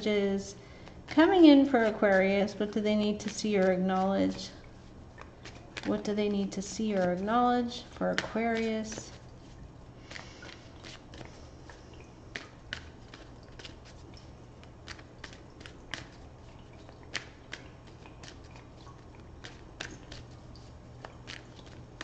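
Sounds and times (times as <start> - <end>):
cards being shuffled: 5.2 - 6.1, 6.8 - 16.2, 19.2 - 22.0.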